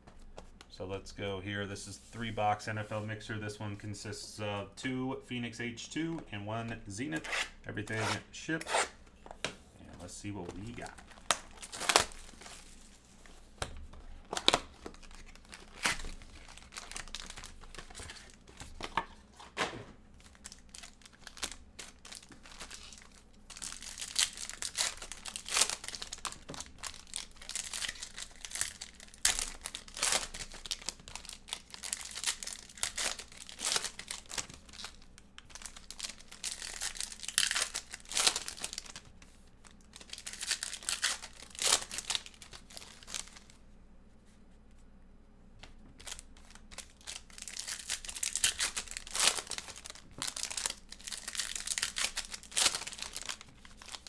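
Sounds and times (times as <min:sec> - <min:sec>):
foil wrappers crinkling and tearing: 0:10.3 - 0:13.4, 0:14.0 - 0:43.6, 0:46.0 - 0:54.0.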